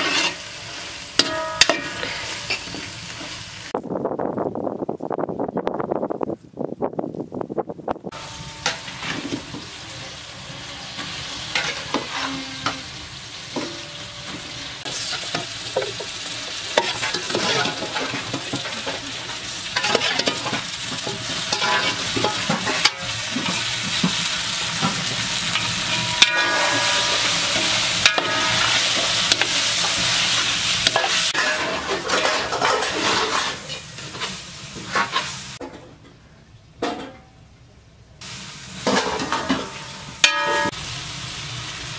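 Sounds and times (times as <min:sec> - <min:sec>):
metal ladle scraping a pot: 0:00.0 - 0:03.4, 0:08.1 - 0:16.0, 0:16.7 - 0:35.4
meat sizzling in a pot: 0:00.0 - 0:03.8, 0:08.1 - 0:31.9, 0:32.8 - 0:35.6, 0:38.2 - 0:41.9.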